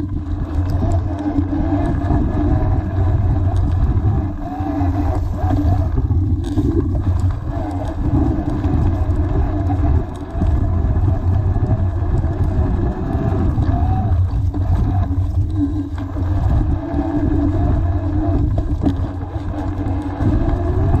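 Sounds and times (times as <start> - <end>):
mountain bike rolling over dirt: 0.0 - 21.0.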